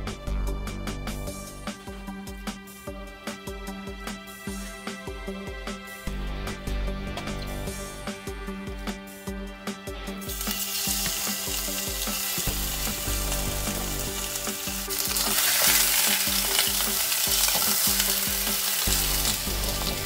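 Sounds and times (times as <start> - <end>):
meat sizzling in a pan: 10.3 - 20.0.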